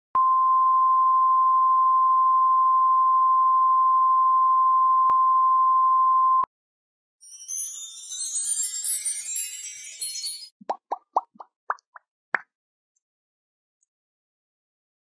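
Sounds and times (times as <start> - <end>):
high twinkling music notes: 7.2 - 10.6.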